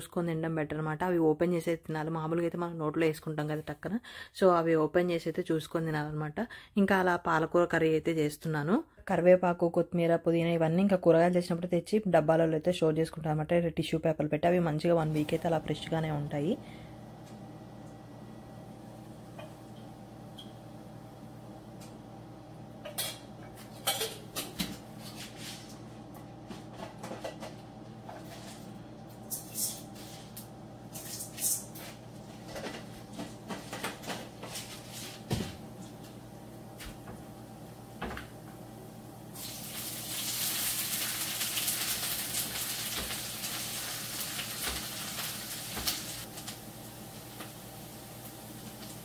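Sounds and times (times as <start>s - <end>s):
steady hum: 14.9s - 40.1s.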